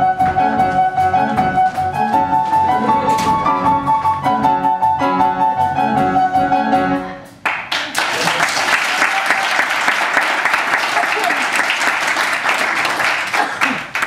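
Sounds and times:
piano-led band playing: 0:00.0 - 0:14.0
audience applause: 0:07.4 - 0:14.0.

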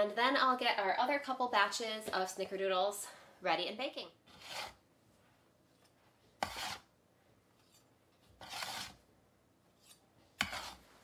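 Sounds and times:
cookies scraping off baking sheet: 0:04.3 - 0:04.8, 0:06.4 - 0:06.9, 0:07.6 - 0:09.0, 0:09.8 - 0:11.0.

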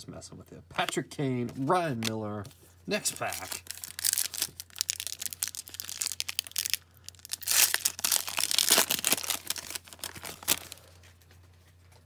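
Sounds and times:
plastic wrapper crinkling and tearing: 0:03.1 - 0:11.0.

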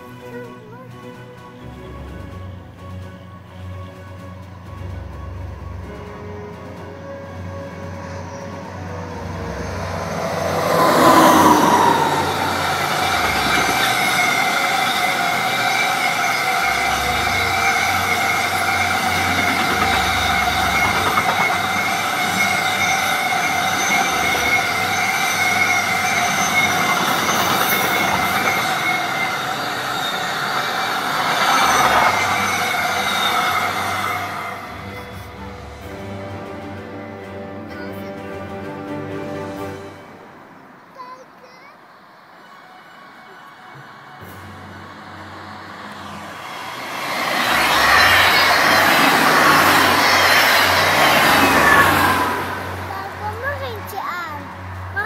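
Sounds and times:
freight train passing: 0:00.0 - 0:55.0
high-pitched wheel squeal: 0:05.6 - 0:36.3, 0:42.2 - 0:53.8.

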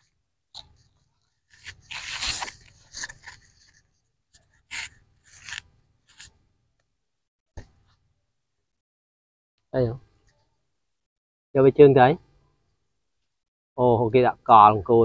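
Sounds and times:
plastic shovel scraping sand: 0:01.5 - 0:03.8, 0:04.6 - 0:06.4.

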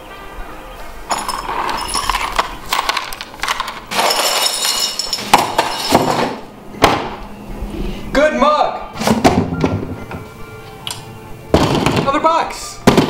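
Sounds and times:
broken glass clinking and rattling: 0:01.1 - 0:06.4.

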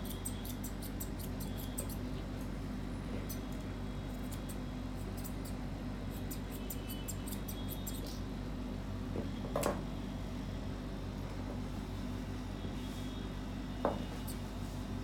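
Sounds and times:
scissors snipping fur: 0:00.0 - 0:02.5, 0:03.2 - 0:08.2.

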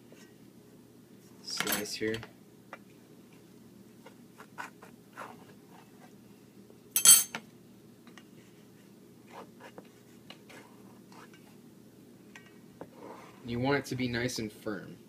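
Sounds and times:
sharp clink against dish: 0:07.0 - 0:07.4.

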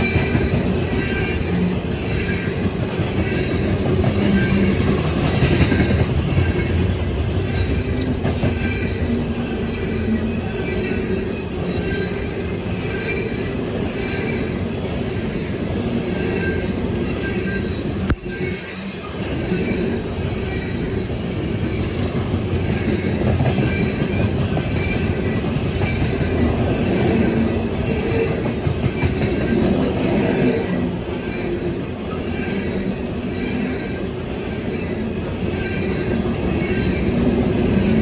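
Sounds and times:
high-pitched wheel squeal: 0:00.0 - 0:05.0, 0:07.4 - 0:21.1, 0:29.0 - 0:38.0
train wheels rumbling on rail: 0:00.0 - 0:38.0.

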